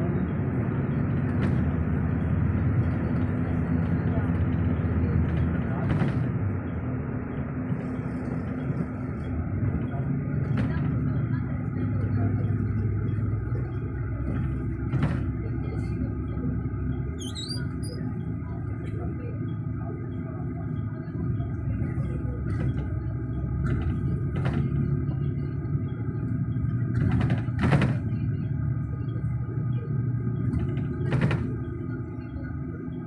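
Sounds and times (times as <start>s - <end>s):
vehicle rumble from inside cabin: 0.0s - 33.0s
knocks and rattles: 30.4s - 31.7s.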